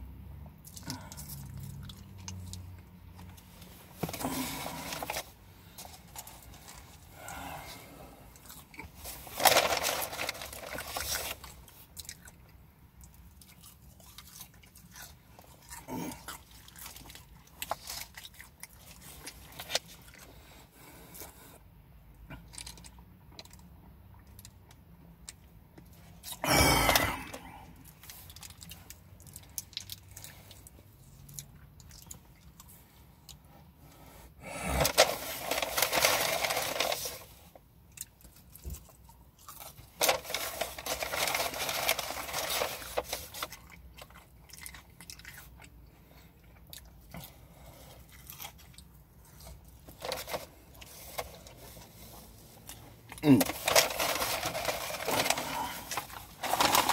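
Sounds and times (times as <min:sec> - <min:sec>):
person chewing food: 0:00.6 - 0:03.5, 0:04.1 - 0:10.0, 0:10.7 - 0:21.6, 0:37.6 - 0:40.6, 0:42.8 - 0:53.2.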